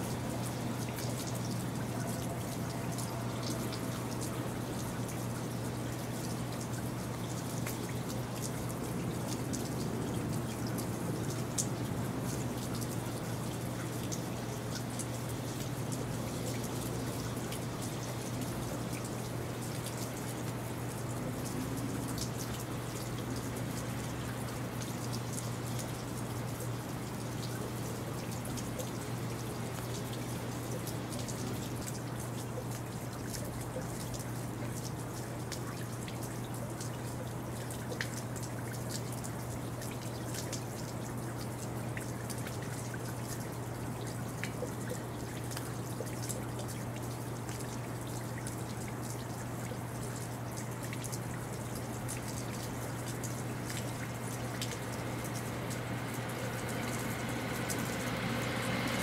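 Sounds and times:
rain dripping and pattering: 0.0 - 59.0.

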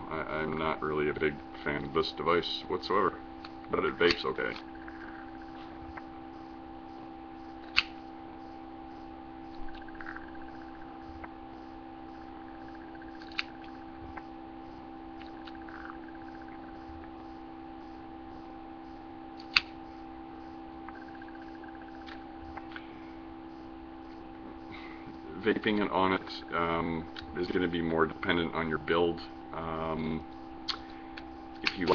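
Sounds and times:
electrical hum: 0.0 - 31.9
sharp clicks: 19.4 - 19.8, 20.9 - 22.9, 30.6 - 31.9.

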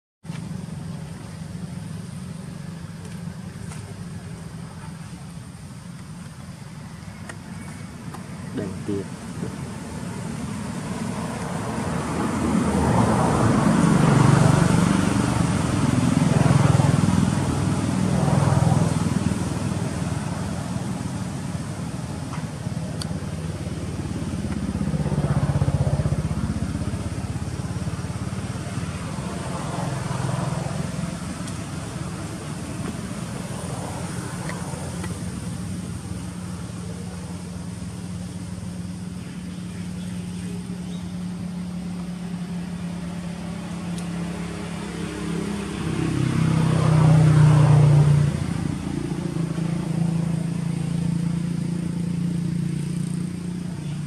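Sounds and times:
engine humming: 0.2 - 54.0.

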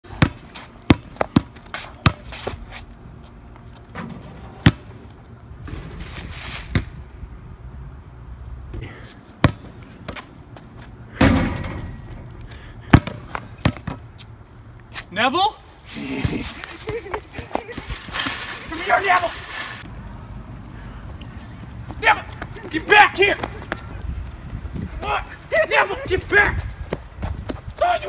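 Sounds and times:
basketball bouncing on court: 0.1 - 2.2, 9.4 - 10.2, 12.9 - 14.0.

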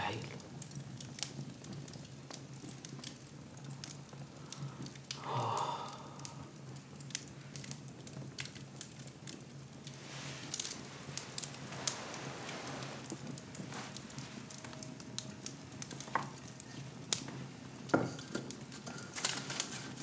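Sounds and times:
wood fire crackling: 0.0 - 20.0.

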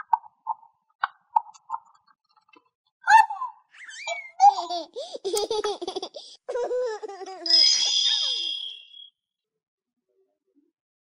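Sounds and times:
toy baby giggling and babbling: 3.1 - 8.4.

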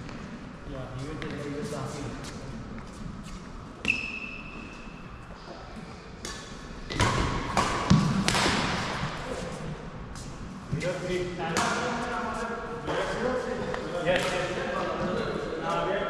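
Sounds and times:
racket hitting shuttlecock: 6.2 - 9.2.

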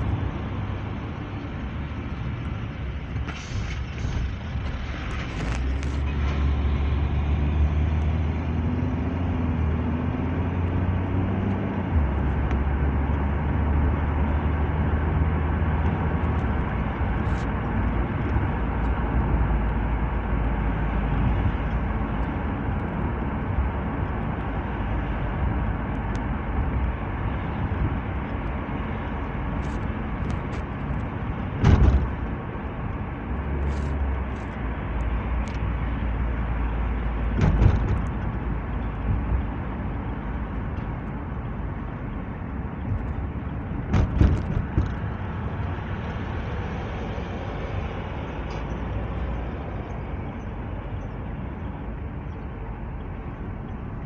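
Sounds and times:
car engine and tyre noise: 0.0 - 54.0
loud thump: 31.6 - 32.3, 37.3 - 38.2, 43.9 - 45.0.

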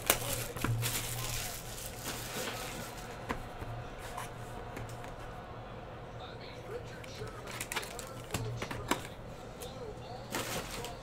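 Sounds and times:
plastic shrink wrap crinkling: 0.0 - 3.2, 7.5 - 8.3.

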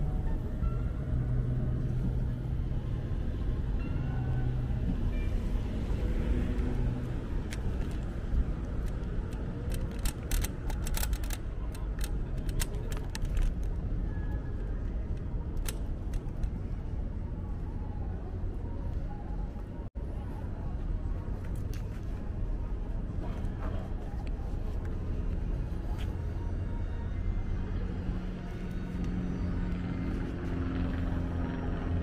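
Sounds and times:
road and traffic rumble: 0.0 - 32.0
sharp clicks: 8.8 - 13.7.

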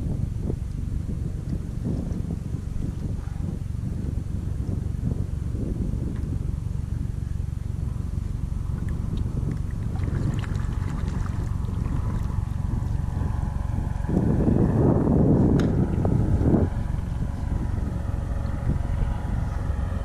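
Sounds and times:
wind on microphone: 0.0 - 20.0
small water splashes: 8.8 - 12.4
water slapping on kayak: 8.8 - 12.4.

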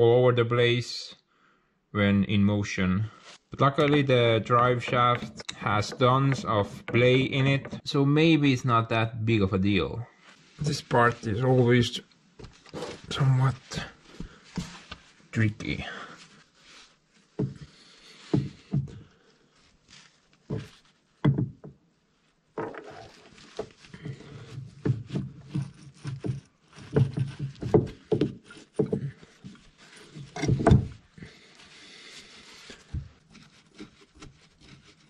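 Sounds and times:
metal clunks and knocks: 30.2 - 31.0.

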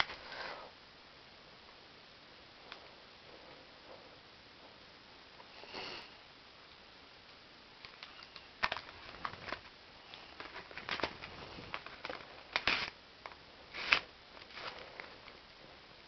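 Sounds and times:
paper rustling: 8.6 - 12.9, 13.7 - 15.2.

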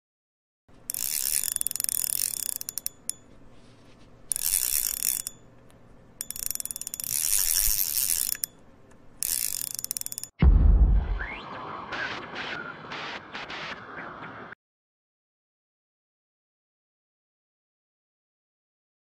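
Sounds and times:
fishing reel drag screaming: 0.9 - 2.9, 4.3 - 5.3, 6.2 - 8.5, 9.2 - 10.3.

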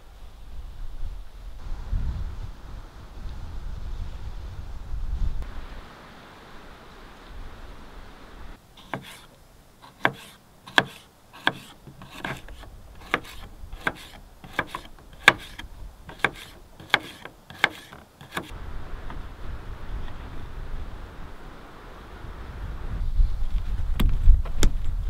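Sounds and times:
knife tapping cutting board: 9.9 - 12.4
knife slicing cucumber: 9.9 - 18.5.

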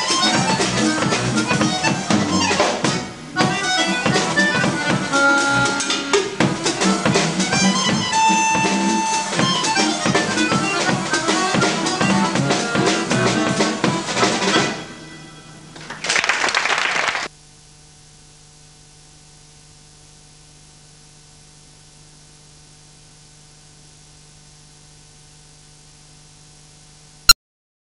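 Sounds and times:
drum kit strikes: 0.0 - 15.0
live band playing: 0.0 - 17.2
faint hum with hiss: 0.0 - 27.3
audience applause: 15.8 - 17.3.

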